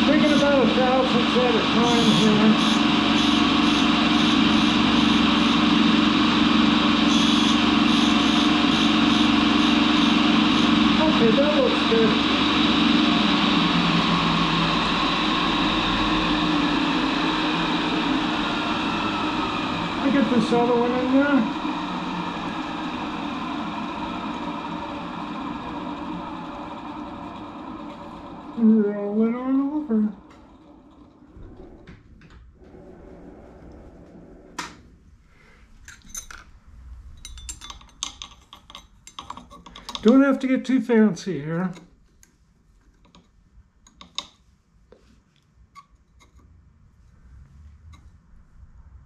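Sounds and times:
lathe humming with whine: 0.0s - 35.5s
metal parts clinking: 35.8s - 36.5s, 37.1s - 40.1s.

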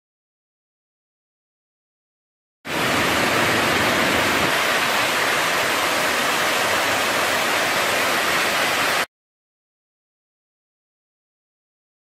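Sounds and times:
water rushing over cascades: 2.7s - 9.1s.

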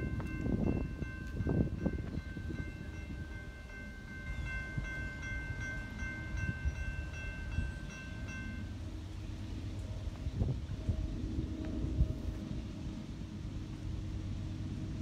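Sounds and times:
crossing warning bell ringing: 0.0s - 9.1s.

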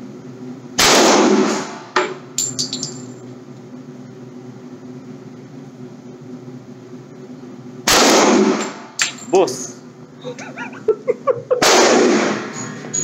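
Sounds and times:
metal casings clinking: 2.0s - 3.3s, 8.6s - 9.4s, 12.4s - 13.0s
gunshots with echo: 11.6s - 12.5s.

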